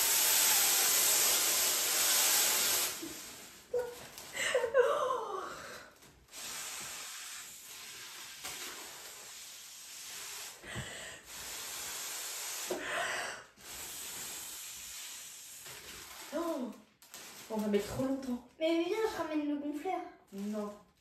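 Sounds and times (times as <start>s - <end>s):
person blowing through a straw: 6.3s - 16.5s
person taking a breath: 10.6s - 11.4s, 12.7s - 13.6s.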